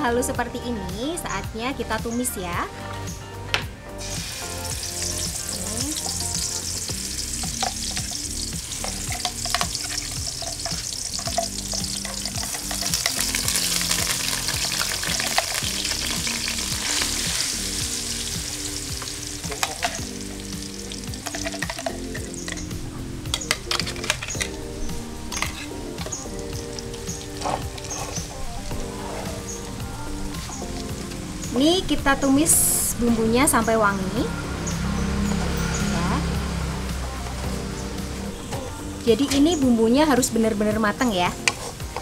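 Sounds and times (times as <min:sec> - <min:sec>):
paste sizzling in hot oil: 0:04.0 - 0:33.0
spatula scraping and tapping pan: 0:07.4 - 0:15.6.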